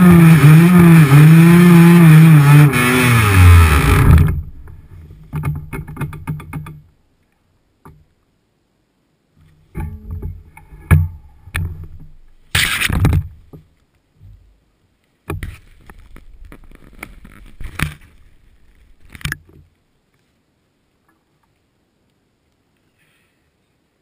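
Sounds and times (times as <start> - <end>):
loud scrape: 0.0 - 5.0, 12.5 - 13.1
sharp clicks and rubbing: 0.1 - 6.8, 9.8 - 13.3, 15.3 - 19.6.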